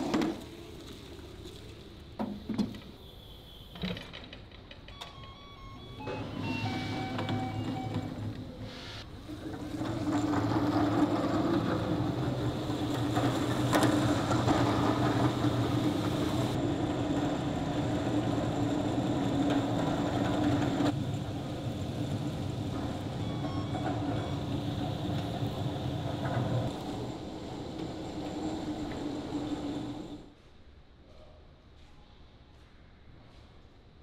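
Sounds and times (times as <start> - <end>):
electric pallet trucks humming: 3.4 - 30.3.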